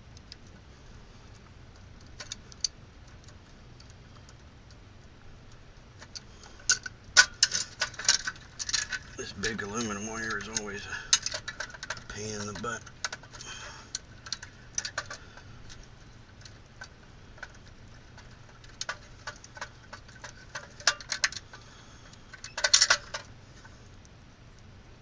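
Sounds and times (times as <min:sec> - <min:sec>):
metallic clicks and clinks: 0:06.0 - 0:23.3.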